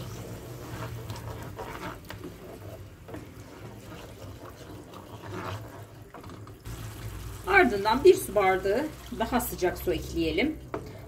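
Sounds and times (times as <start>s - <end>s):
spoon stirring sauce in pan: 0.0s - 11.0s.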